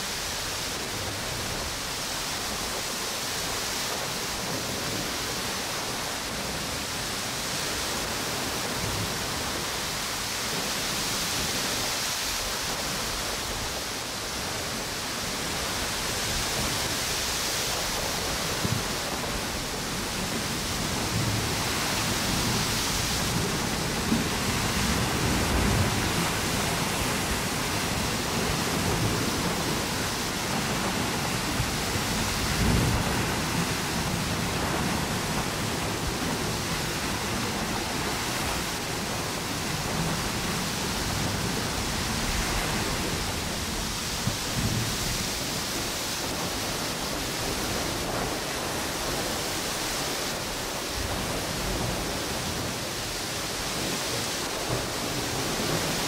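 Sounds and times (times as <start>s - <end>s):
ocean waves washing onto beach: 0.0s - 56.0s
wind through palm trees: 0.0s - 56.0s
low rumbling gusts: 12.5s - 56.0s.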